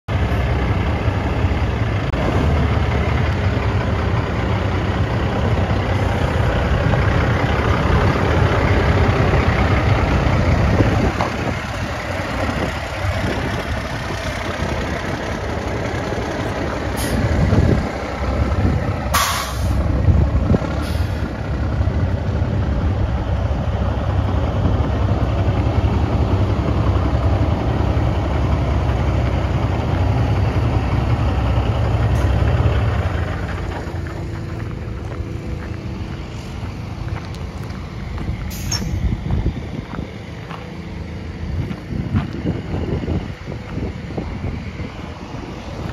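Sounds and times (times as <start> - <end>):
diesel truck engine running: 0.1 - 45.9
sharp hiss of air: 17.0 - 17.3, 19.2 - 19.8, 38.5 - 39.1.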